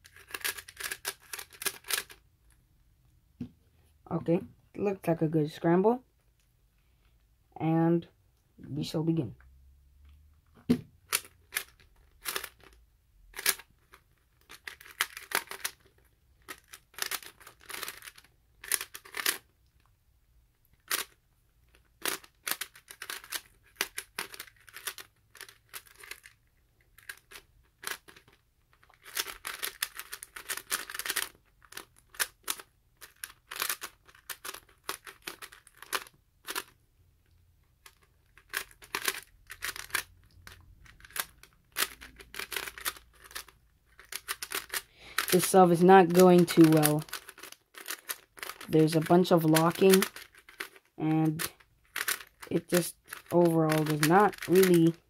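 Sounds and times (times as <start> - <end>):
puzzle cube plastic clicking: 0.0 - 2.3, 10.6 - 19.9, 20.6 - 55.0.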